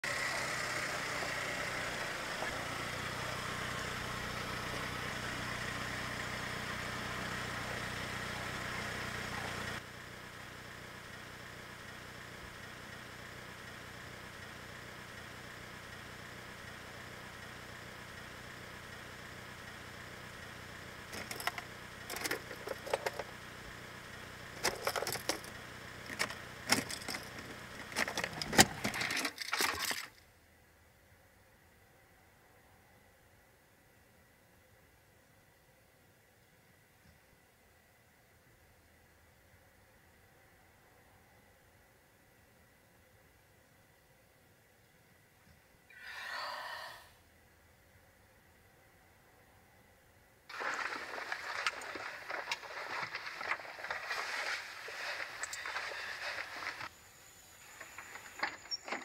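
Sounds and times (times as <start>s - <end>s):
car engine idling: 0.0s - 33.1s, 47.2s - 59.0s
rustling and clicking: 21.1s - 23.3s, 24.6s - 30.2s, 50.5s - 56.9s, 57.7s - 59.0s.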